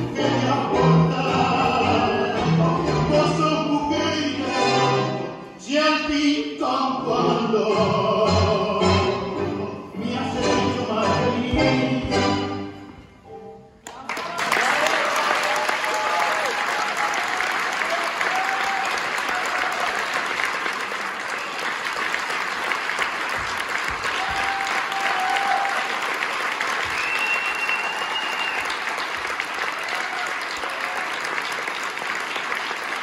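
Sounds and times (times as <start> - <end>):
large audience applauding: 13.8 - 33.0.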